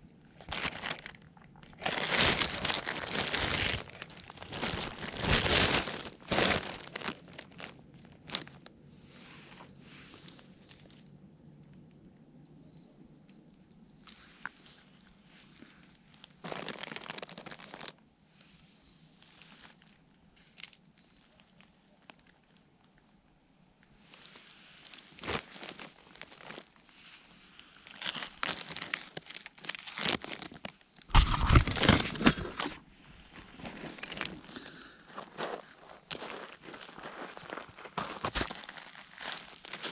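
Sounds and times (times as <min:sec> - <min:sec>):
crunching on pebbles: 0:00.4 - 0:08.7, 0:14.0 - 0:18.0, 0:19.2 - 0:23.0, 0:23.8 - 0:39.9
camera handling on stones: 0:31.1 - 0:32.8.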